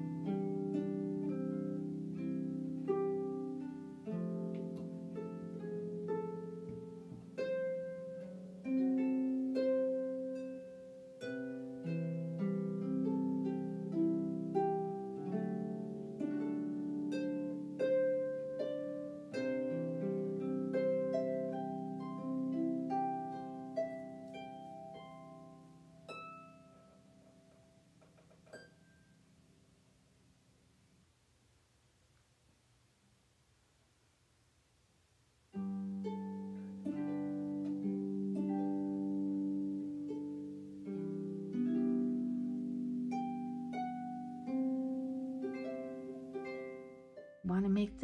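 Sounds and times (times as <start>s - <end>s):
plucked string instrumental music: 0.0s - 27.4s.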